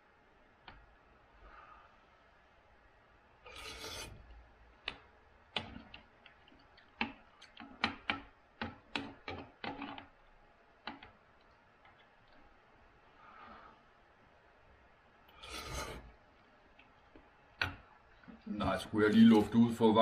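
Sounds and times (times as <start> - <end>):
person slurping soup: 3.5 - 4.2, 15.3 - 16.1.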